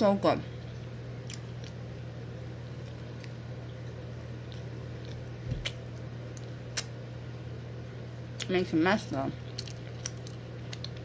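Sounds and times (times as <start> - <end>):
steady low hum: 0.0 - 11.0
chewing with mouth clicks: 0.6 - 1.9, 2.7 - 7.0, 9.4 - 11.0.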